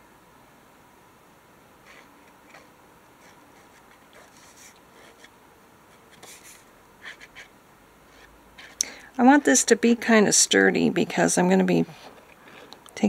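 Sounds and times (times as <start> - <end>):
glue runner rasping on paper: 1.9 - 5.3, 5.9 - 7.5, 8.1 - 9.7
paper sheets rustling: 6.0 - 7.5.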